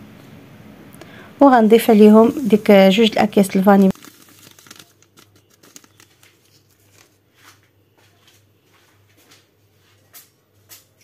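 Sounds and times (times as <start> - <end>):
low steady hum: 0.0 - 8.6
paper sachets rustling: 2.3 - 7.2.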